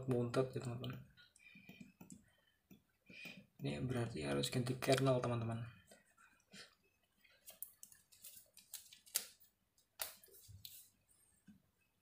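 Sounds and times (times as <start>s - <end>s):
laptop clicks and taps: 1.6s - 3.4s.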